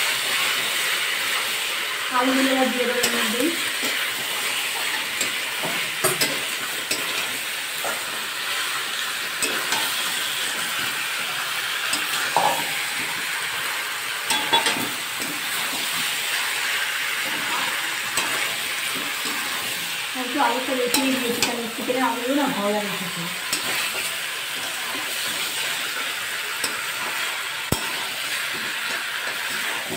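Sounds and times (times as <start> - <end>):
food sizzling in hot oil: 0.0 - 29.9
metal spatula scraping a pan: 2.9 - 20.0.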